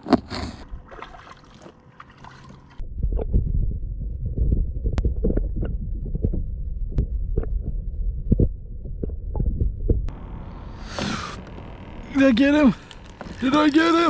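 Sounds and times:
muffled handling rumble and thumps: 2.4s - 14.0s
sharp clicks: 10.9s - 14.0s.

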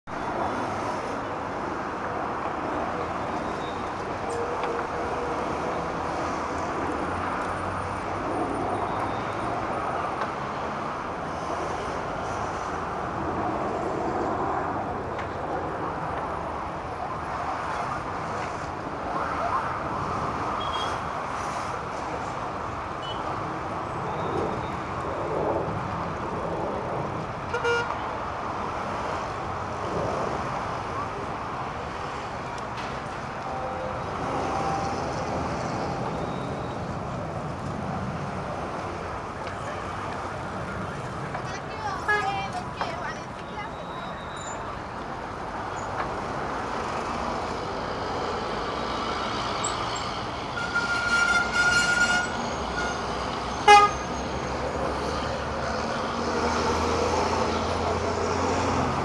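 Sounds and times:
city road traffic: 0.0s - 59.0s.

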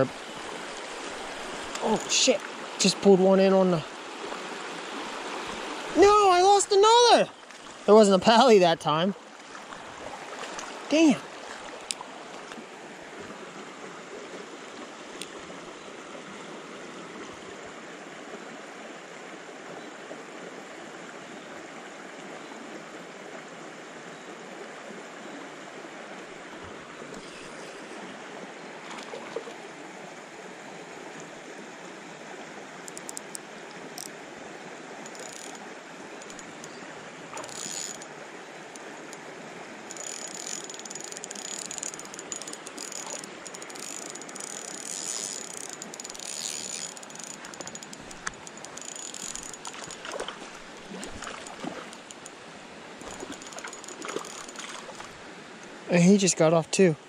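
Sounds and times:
creek running over rocks: 0.0s - 57.0s
fishing reel clicking: 32.8s - 33.4s, 35.0s - 35.6s, 36.2s - 36.8s, 37.4s - 38.1s, 39.9s - 52.4s, 53.1s - 54.7s.

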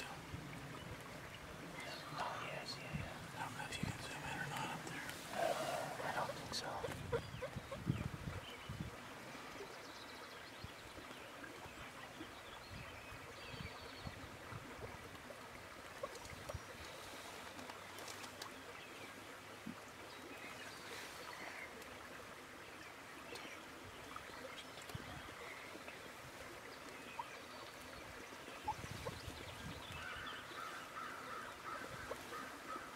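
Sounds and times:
steady hiss: 1.7s - 7.1s.

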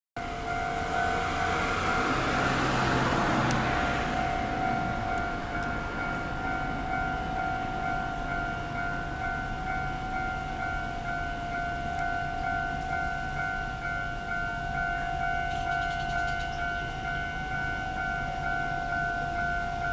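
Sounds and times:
level crossing warning bell: 0.2s - 19.9s
car passing: 0.3s - 11.2s.

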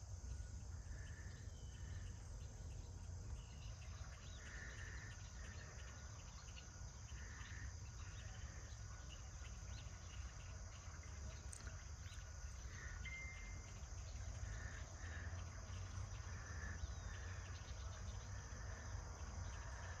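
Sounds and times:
insects chirping: 0.0s - 20.0s.

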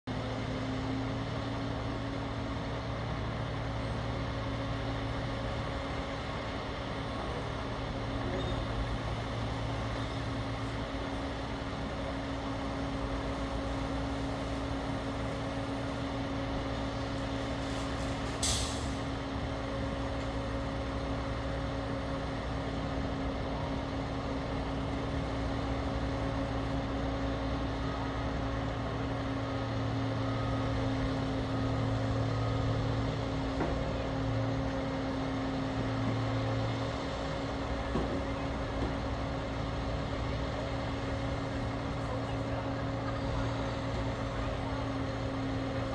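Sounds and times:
truck engine rumble: 0.1s - 45.9s
air brake hiss: 18.4s - 19.0s.

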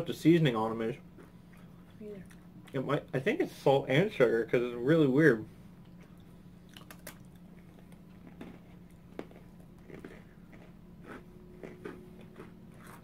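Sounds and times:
faint chewing of crunchy snacks: 0.9s - 3.1s, 5.7s - 13.0s.

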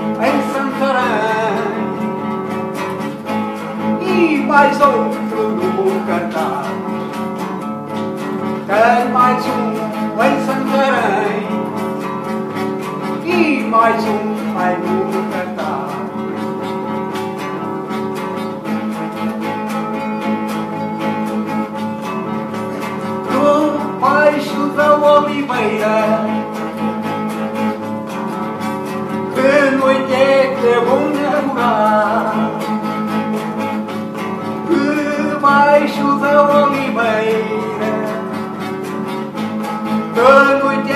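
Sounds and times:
man singing: 0.0s - 2.6s, 3.6s - 7.4s, 8.5s - 12.3s, 13.0s - 16.7s, 22.8s - 26.8s, 29.0s - 40.9s
classical guitar playing: 0.0s - 40.9s.

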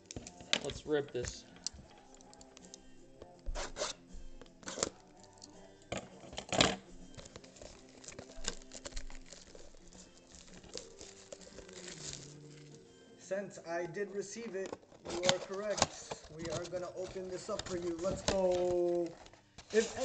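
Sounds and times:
quiet background music: 0.0s - 20.0s
wrapping tearing and crinkling: 3.6s - 5.8s, 7.1s - 12.8s, 14.8s - 20.0s.

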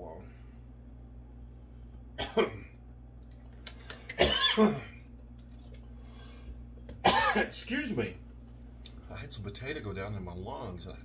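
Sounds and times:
man coughing: 2.2s - 2.7s, 4.2s - 5.0s, 7.0s - 7.7s.

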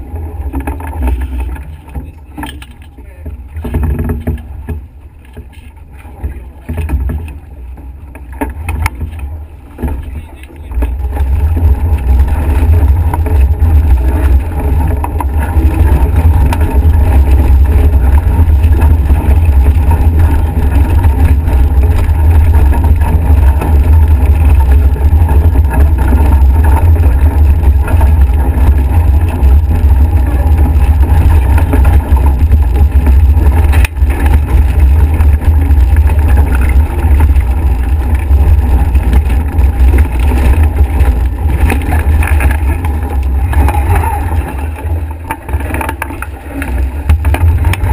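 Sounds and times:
water rushing along hull: 0.0s - 47.9s.

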